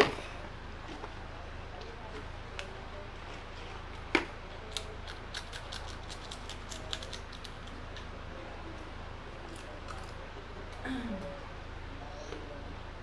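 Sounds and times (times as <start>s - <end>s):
crisp clicks and crackles: 1.8s - 8.1s, 9.5s - 10.8s.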